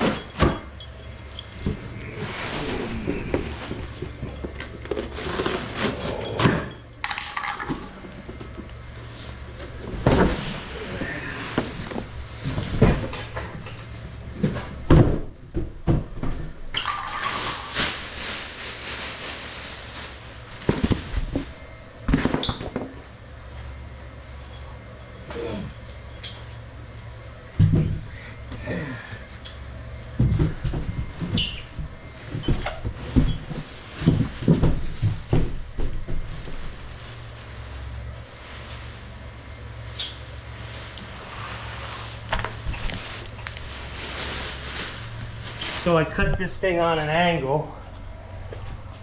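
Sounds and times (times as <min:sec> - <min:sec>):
low hum: 0:00.0 - 0:15.4.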